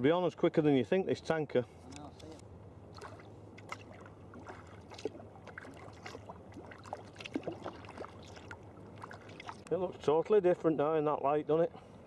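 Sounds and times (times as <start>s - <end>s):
steady low hum: 0.0s - 12.0s
paddle splashes and drips: 2.9s - 9.8s.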